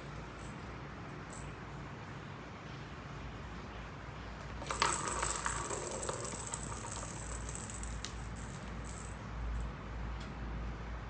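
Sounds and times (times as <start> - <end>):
cat toy jingling and rattling: 4.6 - 9.7.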